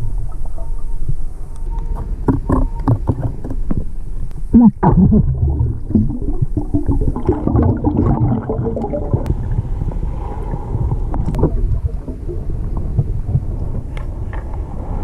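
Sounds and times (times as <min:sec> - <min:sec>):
underwater bubbling and gurgling: 0:00.0 - 0:15.0
underwater low rumble: 0:00.0 - 0:15.0.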